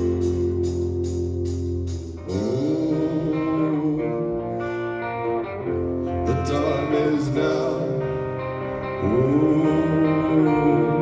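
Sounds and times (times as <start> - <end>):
drums: 0.0 - 6.6
electric guitars ringing chords: 0.0 - 11.0.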